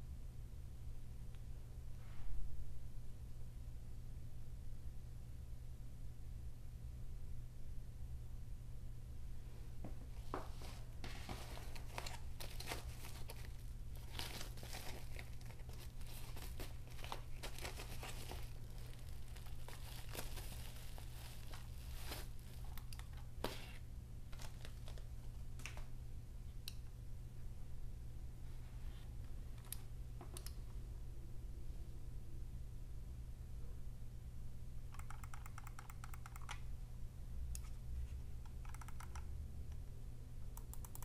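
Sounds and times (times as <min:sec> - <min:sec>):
plastic wrap crinkling: 0:10.5 - 0:22.8, 0:24.3 - 0:25.8.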